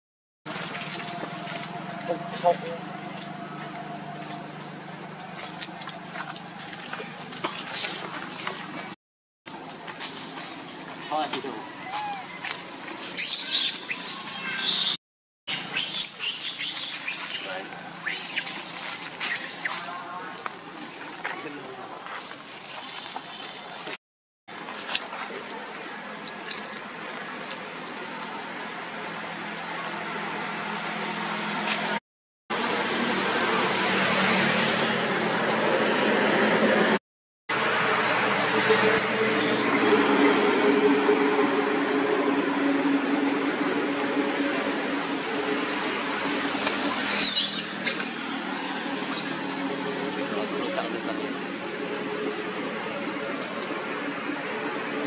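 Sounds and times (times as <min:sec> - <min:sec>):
high-pitched insect drone: 0:00.6 - 0:55.0
squeaky chirping calls: 0:11.6 - 0:12.4, 0:13.1 - 0:18.6, 0:47.0 - 0:48.4.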